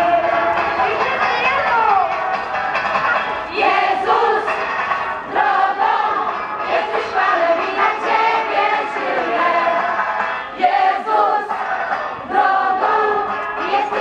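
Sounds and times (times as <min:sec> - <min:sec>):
group singing together: 0:03.2 - 0:14.0.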